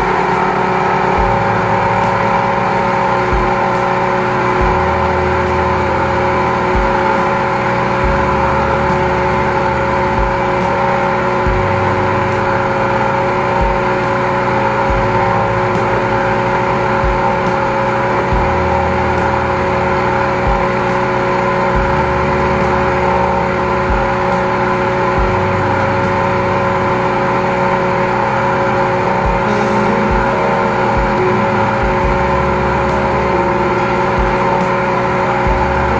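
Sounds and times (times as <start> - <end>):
pump engine whining: 0.0 - 35.9
dull low thumps: 1.0 - 2.1, 3.2 - 3.7, 4.6 - 7.1, 8.0 - 10.6, 11.3 - 12.4, 13.6 - 14.0, 14.9 - 15.8, 18.3 - 20.8, 21.7 - 24.4, 25.1 - 26.9, 30.1 - 34.6, 35.4 - 35.9.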